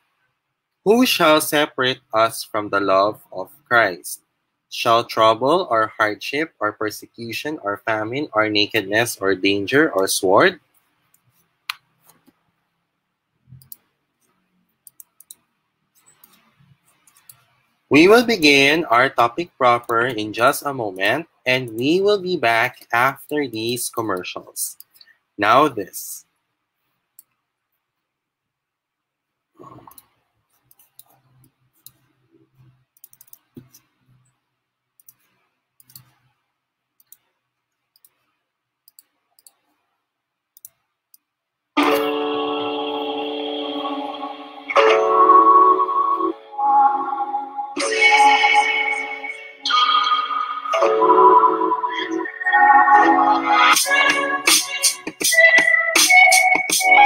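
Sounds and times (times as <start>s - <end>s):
computer mouse clicking: 13.5s - 17.6s, 29.6s - 34.4s, 35.0s - 36.4s, 37.0s - 39.8s, 40.6s - 41.3s.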